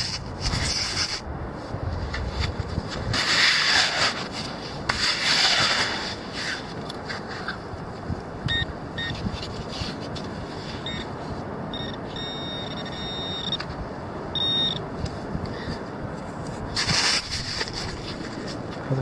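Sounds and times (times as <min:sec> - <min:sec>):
pinpointer beeping: 0:08.5 - 0:09.2, 0:10.8 - 0:11.1, 0:11.7 - 0:13.6, 0:14.3 - 0:14.8.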